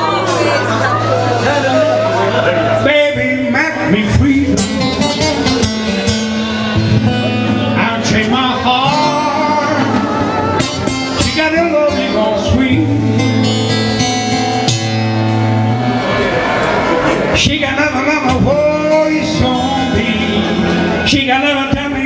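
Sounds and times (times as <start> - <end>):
guitar playing: 0.0 - 22.0
man singing into a microphone: 2.8 - 6.2, 7.2 - 14.0, 17.3 - 22.0.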